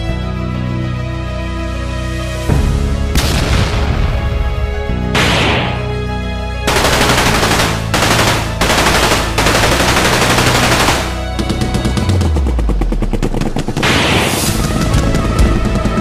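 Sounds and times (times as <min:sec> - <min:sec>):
dramatic background music: 0:00.0 - 0:16.0
automatic gunfire: 0:06.7 - 0:11.3.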